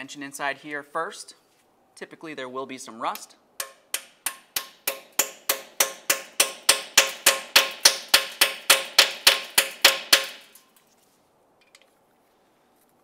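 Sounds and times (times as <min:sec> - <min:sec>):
sharp metallic taps: 0:03.2 - 0:10.6.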